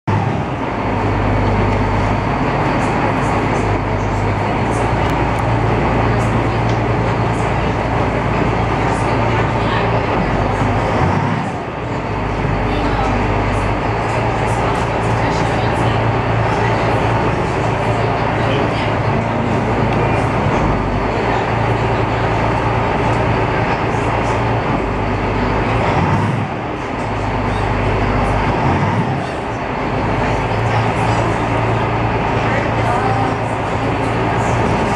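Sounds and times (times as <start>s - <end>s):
boat engine humming: 0.0s - 34.9s
water rushing against hull: 0.0s - 34.9s.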